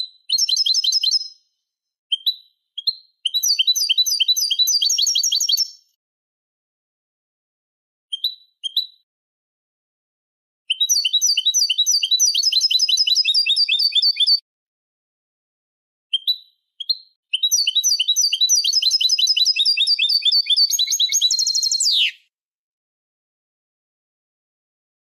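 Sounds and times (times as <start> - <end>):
goldfinch song fast chirping: 0.3 - 1.4, 2.1 - 5.8, 10.7 - 14.4, 16.2 - 22.2
single bird calls: 21.2 - 22.2.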